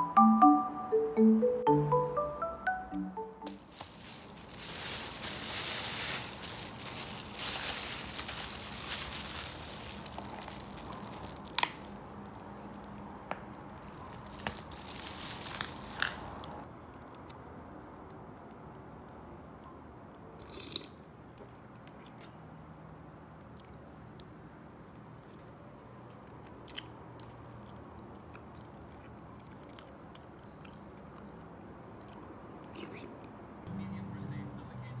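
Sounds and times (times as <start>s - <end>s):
plastic bag crinkling: 3.4s - 16.7s.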